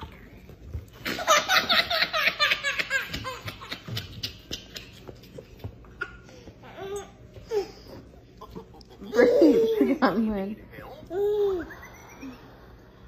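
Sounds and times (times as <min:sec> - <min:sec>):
baby laughing: 0:01.0 - 0:07.7.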